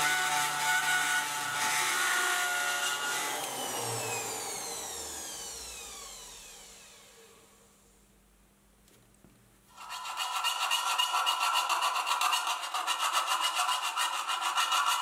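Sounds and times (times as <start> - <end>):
rotary tool winding down: 3.1 - 7.2
rotary tool grinding metal: 9.7 - 15.0.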